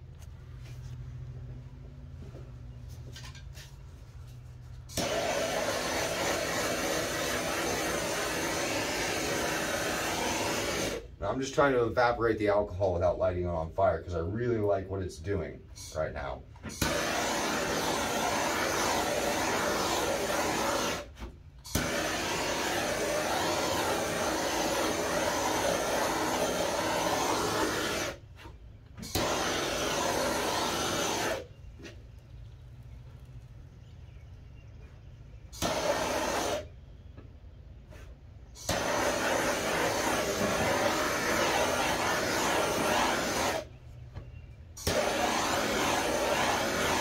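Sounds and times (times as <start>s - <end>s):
heat gun blowing air: 4.9s - 11.1s, 16.6s - 28.3s, 29.0s - 31.6s, 35.6s - 36.7s, 38.5s - 43.8s, 44.8s - 47.0s.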